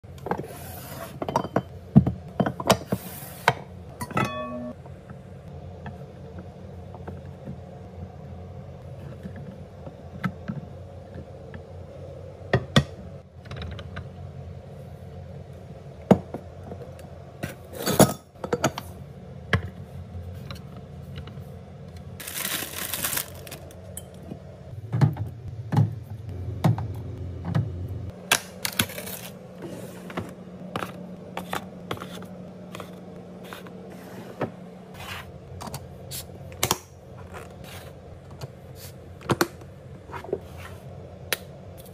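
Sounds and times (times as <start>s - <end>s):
glass jars clinking: 4.0s - 4.8s.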